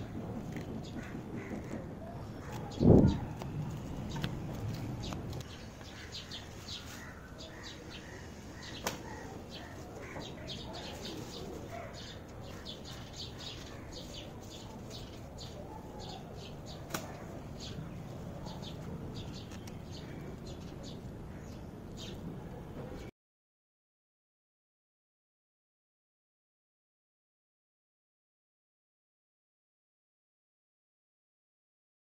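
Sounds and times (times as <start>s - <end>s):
outdoor background noise: 0.0s - 23.1s
small birds chirping: 0.5s - 22.3s.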